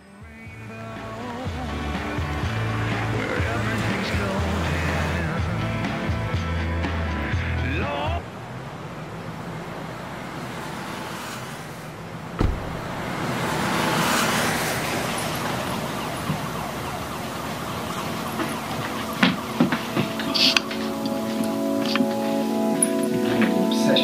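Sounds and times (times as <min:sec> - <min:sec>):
passing vehicles hiss: 0:08.3 - 0:19.2
sharp thump: 0:12.4 - 0:13.6.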